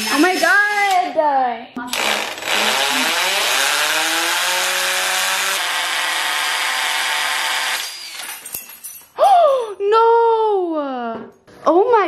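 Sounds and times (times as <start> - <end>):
cordless drill whine: 1.9 - 7.8.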